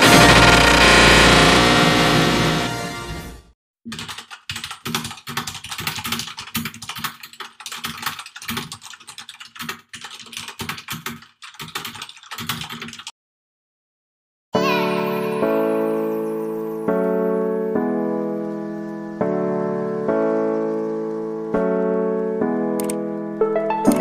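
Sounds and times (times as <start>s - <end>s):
computer keyboard typing: 3.9s - 13.1s, 22.8s - 23.0s
piano music: 14.6s - 24.0s.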